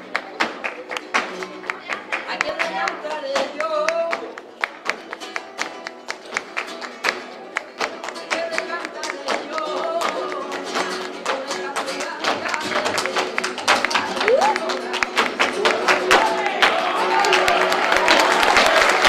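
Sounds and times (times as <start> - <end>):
flamenco guitar strummed: 0.0 - 19.0
rhythmic hand clapping: 0.0 - 19.0.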